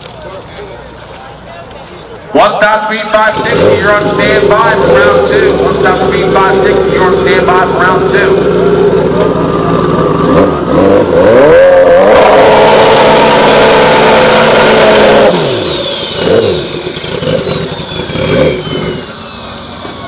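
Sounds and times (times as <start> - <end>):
motorcycle engine revving: 3.1 - 20.0
spinning tyre hiss: 12.2 - 20.0
high falling whistle: 15.5 - 20.0.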